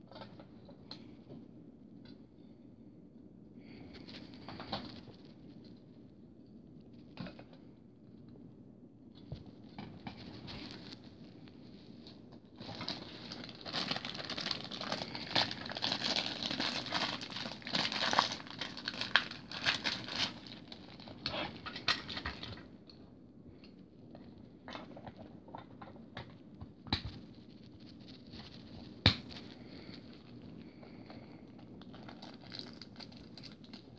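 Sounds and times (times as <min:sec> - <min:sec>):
plastic packaging crinkling: 0:09.3 - 0:22.7, 0:27.0 - 0:33.9.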